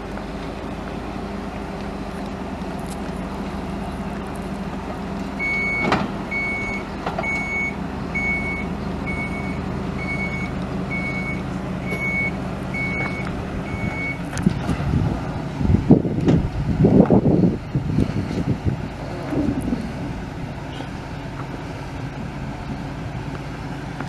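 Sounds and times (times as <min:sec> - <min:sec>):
truck engine running: 0:00.0 - 0:24.0
truck backup alarm beeping: 0:05.4 - 0:14.4.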